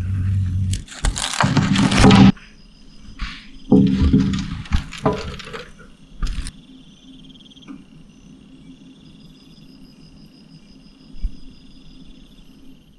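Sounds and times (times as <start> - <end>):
insects trilling: 0.6 - 12.9.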